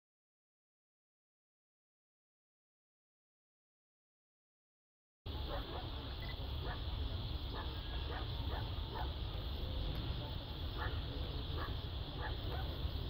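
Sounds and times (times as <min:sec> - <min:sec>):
faint dog barking: 0:05.3 - 0:09.4, 0:10.1 - 0:13.0
steady low rumble: 0:05.3 - 0:13.0.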